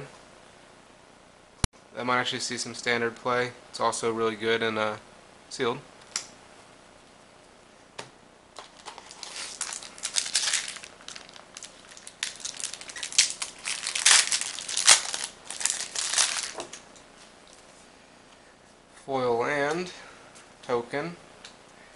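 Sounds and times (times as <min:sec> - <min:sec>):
foil wrapper crinkling and tearing: 0:08.6 - 0:16.8.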